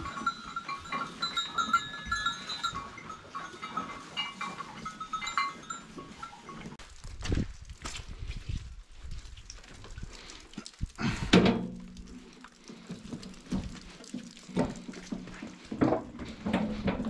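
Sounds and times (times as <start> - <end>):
small knocks and rustles: 11.4 - 17.0.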